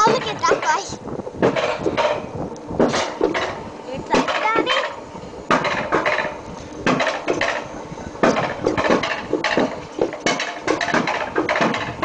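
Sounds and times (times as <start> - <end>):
coaster sled clattering on metal rails: 0.0 - 12.0.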